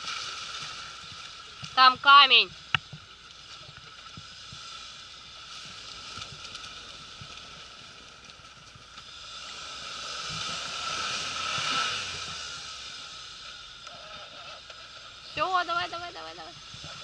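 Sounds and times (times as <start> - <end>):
vehicle churning through snow and slush: 9.0 - 17.0.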